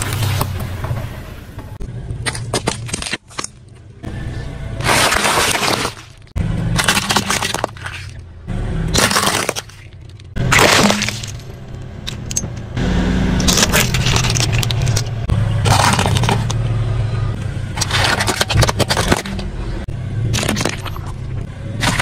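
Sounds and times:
tyre crushing objects: 0:04.8 - 0:08.2, 0:08.9 - 0:12.2, 0:13.4 - 0:16.6, 0:17.7 - 0:19.6, 0:20.2 - 0:22.0
car engine running low: 0:11.2 - 0:22.0.

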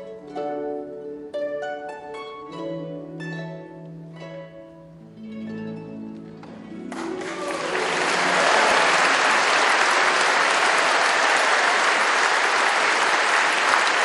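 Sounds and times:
harp notes: 0:00.0 - 0:08.3
audience applauding: 0:06.8 - 0:14.0.

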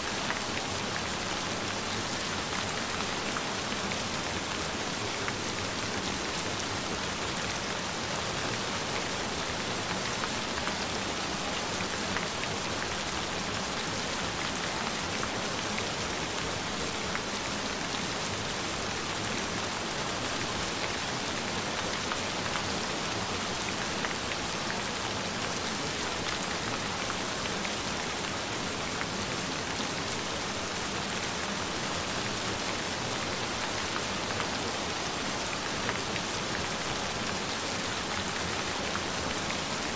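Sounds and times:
gentle rain falling: 0:00.0 - 0:39.9.

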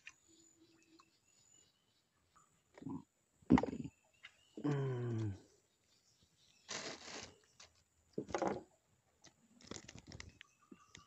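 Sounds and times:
man groaning: 0:04.6 - 0:05.4
rustling scrapes and clicks: 0:09.6 - 0:10.4.

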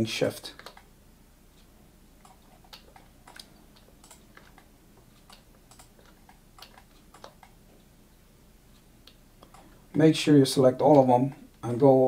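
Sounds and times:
mouse and keyboard clicking: 0:00.6 - 0:00.9, 0:02.2 - 0:07.6.

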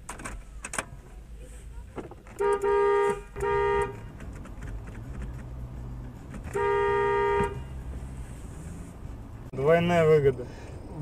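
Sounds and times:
car horn honking: 0:02.4 - 0:04.2, 0:06.4 - 0:08.1.

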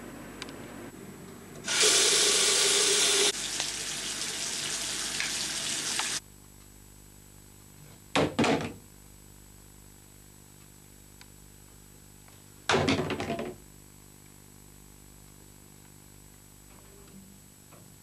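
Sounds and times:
water gushing from tap into sink: 0:01.7 - 0:06.2.

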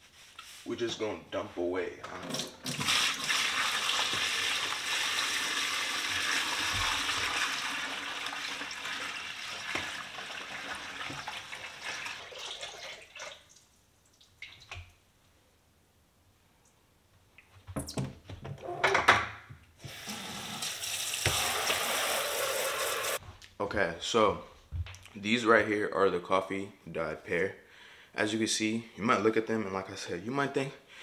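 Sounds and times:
water pouring into a steel sink: 0:02.3 - 0:13.6, 0:19.9 - 0:23.2.

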